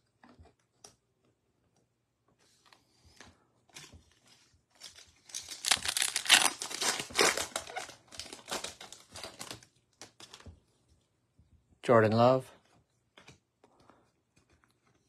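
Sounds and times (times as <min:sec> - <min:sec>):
foil wrapper crackling: 0:04.8 - 0:10.4.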